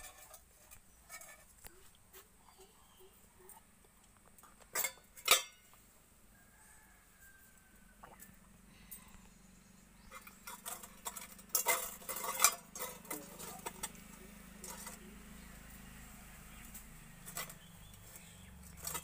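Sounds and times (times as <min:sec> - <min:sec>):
fingers scraping metal bowl: 0:00.0 - 0:01.6, 0:10.0 - 0:15.5, 0:16.7 - 0:19.0.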